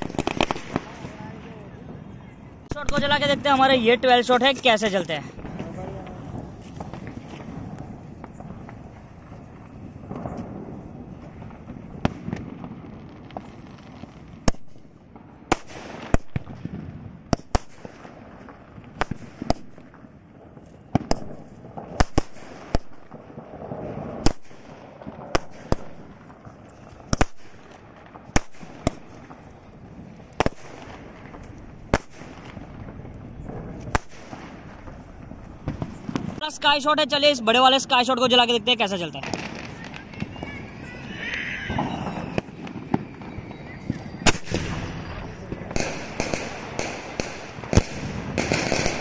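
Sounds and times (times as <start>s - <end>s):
firework bangs: 0.0s - 49.0s.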